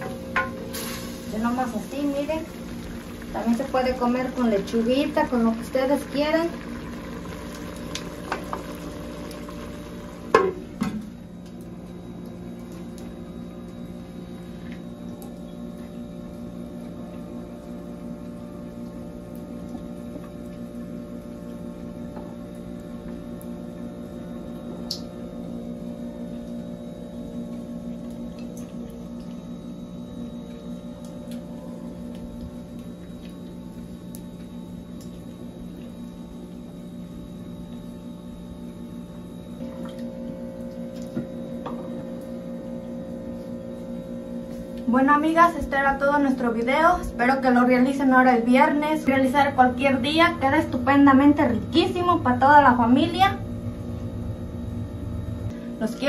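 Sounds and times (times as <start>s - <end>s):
low hum of held tones: 0.0s - 56.0s.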